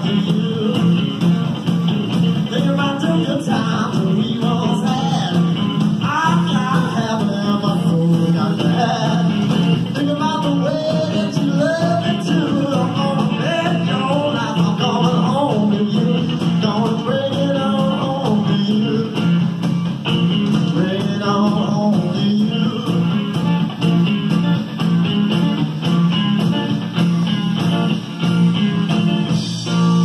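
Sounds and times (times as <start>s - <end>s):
person singing: 0.0s - 1.4s, 2.5s - 19.4s, 20.5s - 23.6s
bass line: 0.0s - 30.0s
rock and roll band playing: 0.0s - 30.0s.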